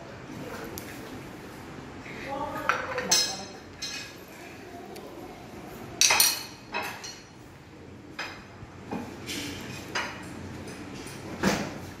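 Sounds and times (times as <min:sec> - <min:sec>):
tableware knocks and clinks: 0:02.6 - 0:04.2, 0:06.0 - 0:07.3, 0:08.1 - 0:11.9.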